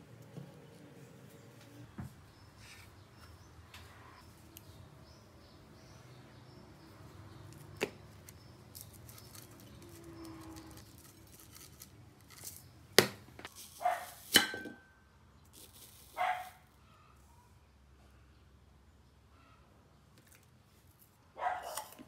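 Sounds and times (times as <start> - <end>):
small dog barking: 13.8 - 14.2, 16.2 - 16.6, 21.4 - 21.8.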